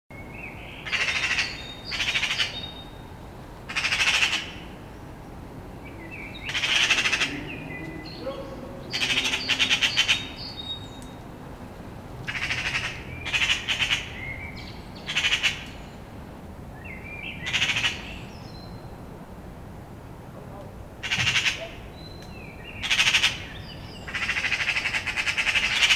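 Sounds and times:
magpies harsh rattling chatter: 0.8s - 2.6s, 3.7s - 4.6s, 6.3s - 10.7s, 12.3s - 14.2s, 15.0s - 15.7s, 17.4s - 18.1s, 21.0s - 22.0s, 22.8s - 25.9s.

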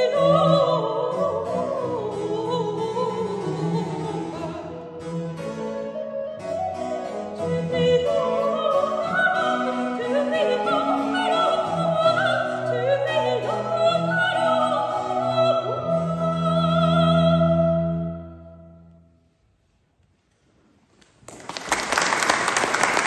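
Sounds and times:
woman singing operatically: 0.0s - 5.0s, 7.1s - 18.3s
cello: 0.0s - 19.0s
flute: 0.0s - 19.1s.

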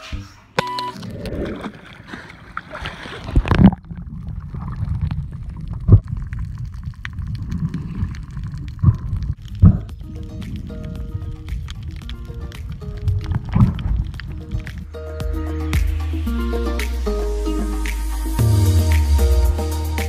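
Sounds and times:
underwater gurgling and rumble: 0.9s - 14.8s.

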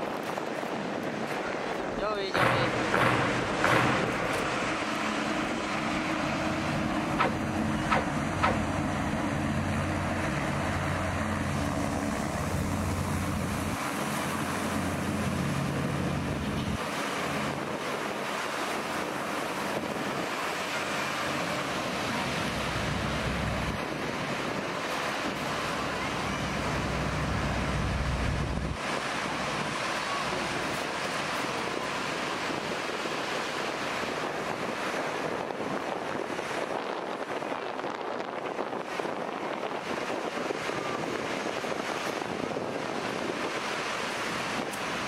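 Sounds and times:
wind buffeting microphone: 0.0s - 45.0s
hovercraft engine and fan hum: 0.7s - 45.0s.

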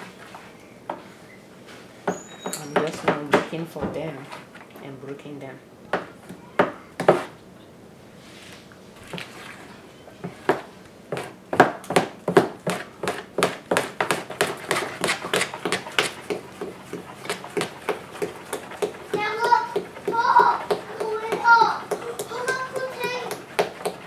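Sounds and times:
spoon beating cream cheese in bowl: 10.2s - 24.0s.

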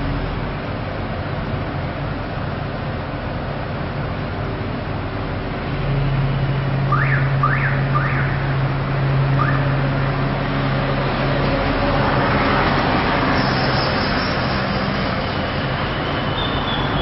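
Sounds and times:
street traffic noise: 0.0s - 17.0s
rising whistle-like chirps: 15.9s - 17.0s.

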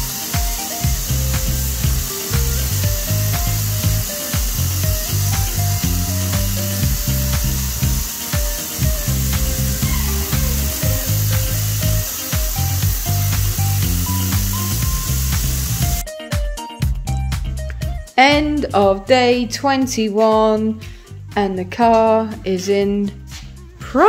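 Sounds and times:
spray gun hissing: 0.0s - 16.0s
background music with beat: 0.0s - 24.0s.

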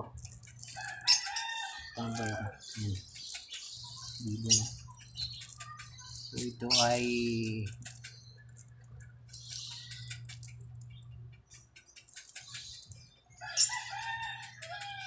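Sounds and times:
plastic wrap crinkling: 0.0s - 1.3s
bird calling: 0.0s - 15.0s.

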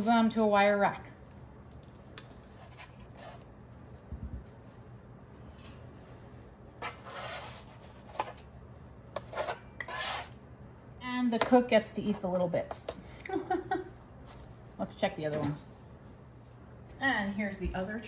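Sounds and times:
metal spatula scraping baking sheet: 6.8s - 8.5s, 9.2s - 10.4s.

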